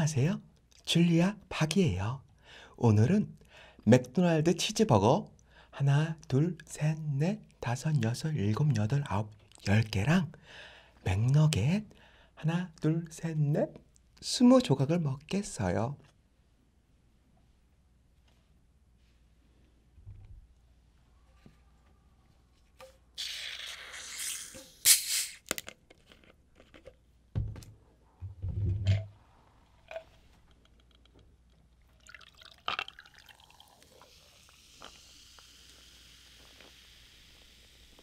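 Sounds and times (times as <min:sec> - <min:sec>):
bottle hiss: 0:23.2 - 0:25.5, 0:33.5 - 0:38.0
cola fizzing over ice: 0:31.9 - 0:37.8.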